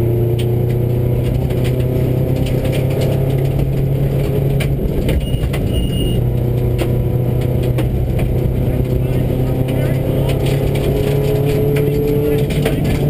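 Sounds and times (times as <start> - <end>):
rally car engine: 0.0 - 13.0.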